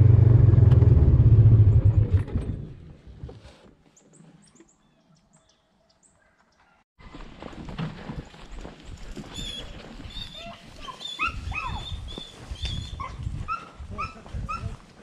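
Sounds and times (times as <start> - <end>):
dogs barking and yipping: 9.3 - 14.7.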